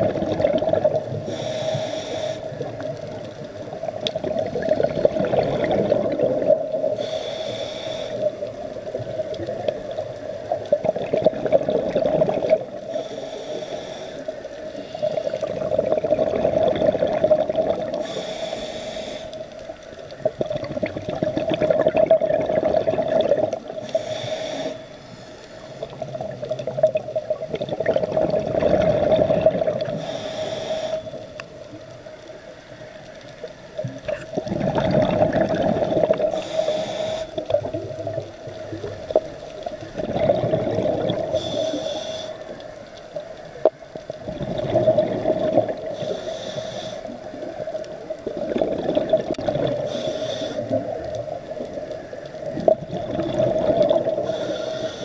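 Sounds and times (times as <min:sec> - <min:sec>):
exhaled bubbles: 0:00.0 - 0:01.5, 0:02.4 - 0:07.1, 0:08.2 - 0:13.0, 0:15.0 - 0:18.3, 0:20.1 - 0:24.2, 0:25.8 - 0:30.1, 0:33.4 - 0:41.7, 0:42.5 - 0:46.3, 0:47.1 - 0:54.8
hissing regulator inhalations: 0:01.2 - 0:02.7, 0:06.9 - 0:08.5, 0:12.8 - 0:15.4, 0:17.9 - 0:19.6, 0:23.8 - 0:26.0, 0:29.9 - 0:31.4, 0:36.2 - 0:37.6, 0:41.2 - 0:42.7, 0:45.8 - 0:47.5, 0:49.8 - 0:51.0, 0:54.2 - 0:55.0.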